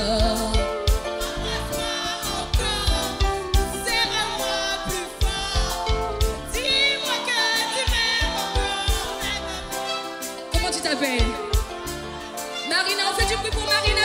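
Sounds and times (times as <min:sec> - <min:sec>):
drum beat: 0:00.0 - 0:09.7, 0:10.3 - 0:12.4, 0:13.0 - 0:14.0.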